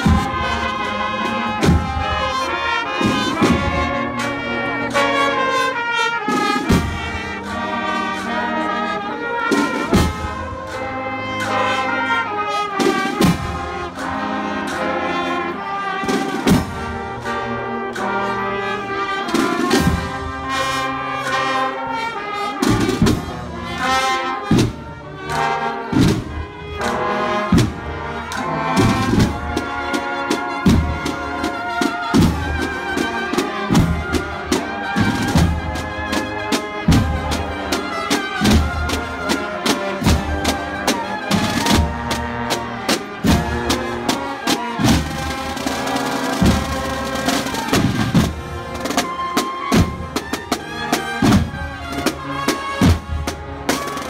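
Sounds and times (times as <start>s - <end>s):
steady drum beat: 0.0s - 4.1s, 28.8s - 54.0s
trumpets and trombones melody: 0.0s - 54.0s.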